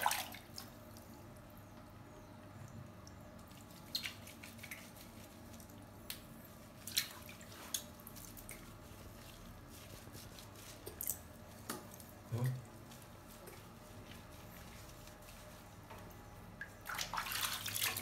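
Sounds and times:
water drips and splashes: 0.0 - 1.1, 5.6 - 8.7, 16.5 - 18.0
soapy hands squelching: 3.5 - 18.0.

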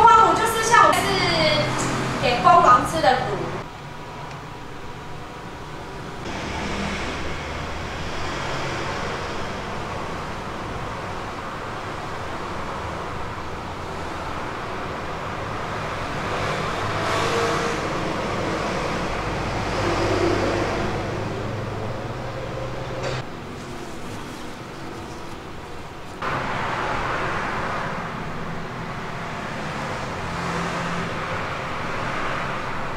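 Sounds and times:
rumble of passing vehicles: 0.0 - 32.9.

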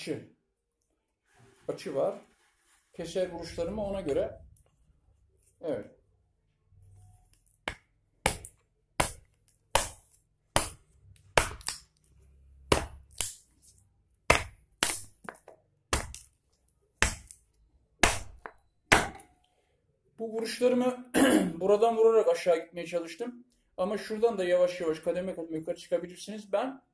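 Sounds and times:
hatchet chopping wood: 7.6 - 11.8, 12.7 - 13.4, 14.3 - 16.3, 17.0 - 17.4, 18.0 - 19.3.

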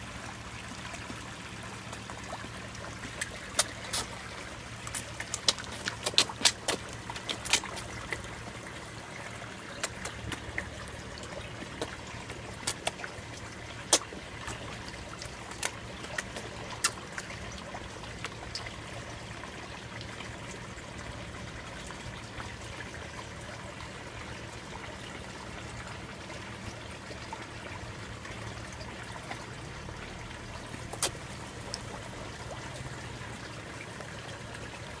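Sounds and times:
trickle of pond water: 0.0 - 35.0
fish sucking at water surface: 2.8 - 8.4.

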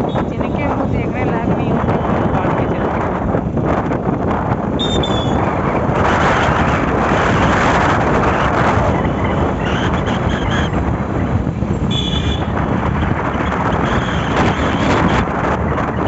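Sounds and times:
motorcycle engine: 0.0 - 16.0
road noise: 0.0 - 16.0
wind buffeting microphone: 0.0 - 16.0.

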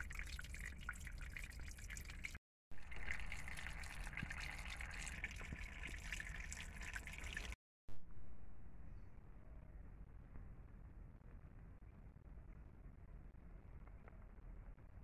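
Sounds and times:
water drips: 0.0 - 7.6
water trickling over rock: 0.0 - 7.6.

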